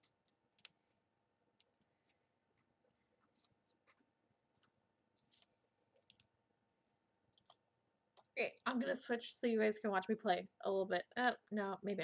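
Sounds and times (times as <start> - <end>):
slime clicking and crackling: 0.0 - 2.2, 3.2 - 6.4, 7.3 - 8.4.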